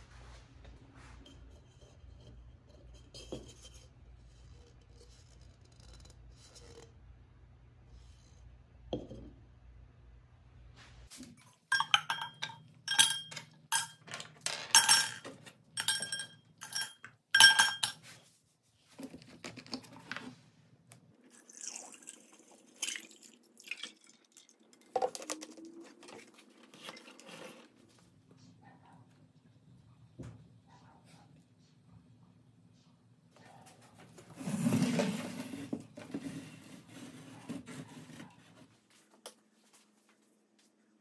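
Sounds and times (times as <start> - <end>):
plastic parts clinking in glass jar: 11.7 - 18.0
liquid pouring: 21.2 - 27.6.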